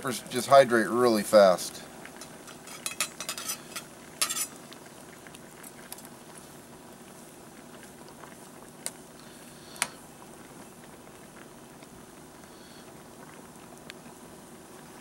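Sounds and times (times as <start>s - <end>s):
boiling water bubbling: 0.0s - 15.0s
spoon clinking against pot: 2.6s - 4.6s.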